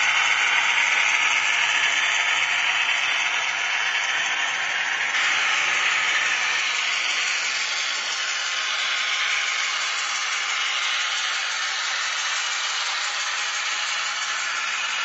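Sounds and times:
model train hissing rush: 0:00.0 - 0:15.0.

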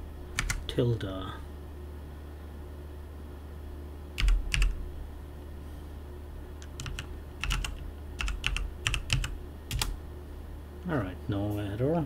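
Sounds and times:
steady low hum: 0:00.0 - 0:12.0
keyboard typing: 0:00.3 - 0:00.7, 0:04.2 - 0:04.8, 0:06.6 - 0:10.0.

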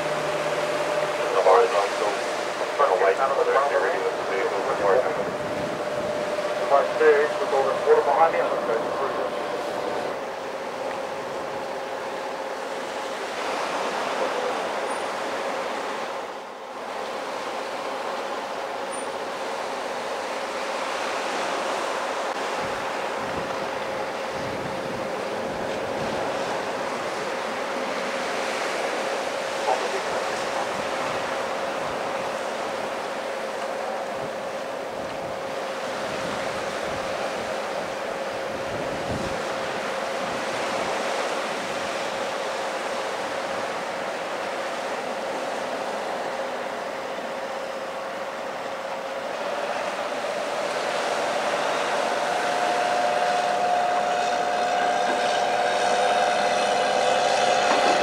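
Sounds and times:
engine whining: 0:00.0 - 0:13.0
surf washing on shore: 0:00.0 - 0:58.0
wind on microphone: 0:04.1 - 0:08.0, 0:22.5 - 0:27.2, 0:34.1 - 0:42.3.

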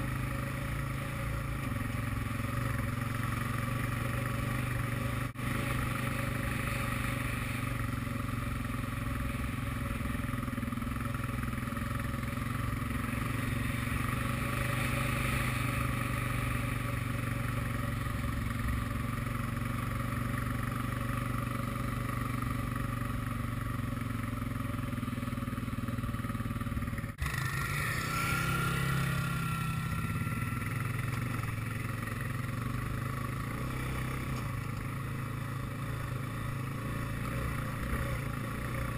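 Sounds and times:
quad engine running: 0:00.0 - 0:38.9
high engine whine: 0:23.8 - 0:38.9.

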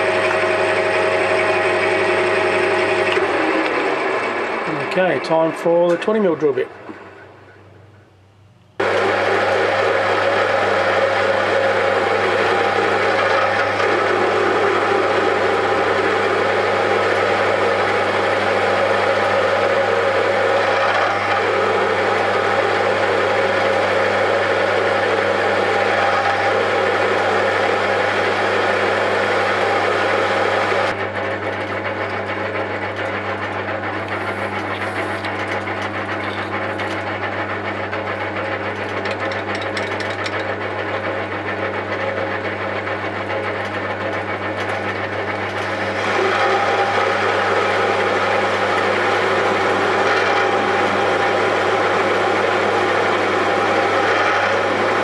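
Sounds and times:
lathe humming: 0:00.0 - 0:08.0, 0:08.7 - 0:55.0
drill scraping into metal: 0:33.0 - 0:37.4, 0:45.4 - 0:55.0.

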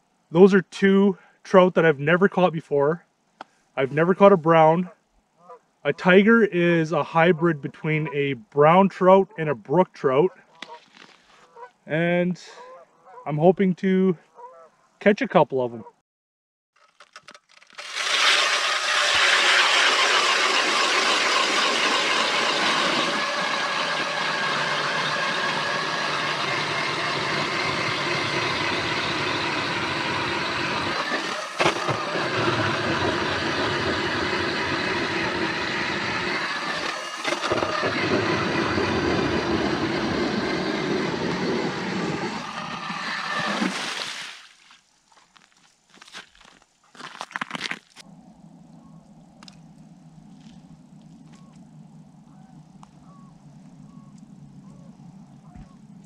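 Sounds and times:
power ice auger drilling: 0:16.8 - 0:44.3.

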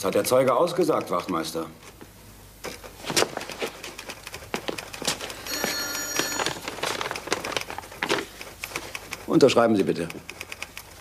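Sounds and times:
typewriter keys clicking: 0:03.5 - 0:05.5, 0:06.7 - 0:11.0
typewriter bell ringing: 0:05.4 - 0:07.0.

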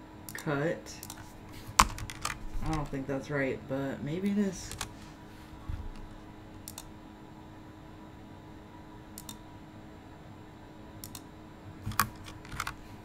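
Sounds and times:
low steady hum: 0:00.0 - 0:13.0
keyboard and mouse clicks: 0:00.3 - 0:03.0, 0:05.9 - 0:06.9, 0:09.2 - 0:09.4, 0:11.0 - 0:12.8.

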